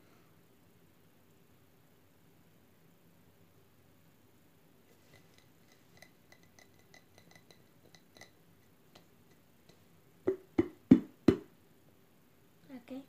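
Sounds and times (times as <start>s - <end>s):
taps on glass jar: 5.0s - 11.5s
loud knocks of jar: 10.3s - 11.5s.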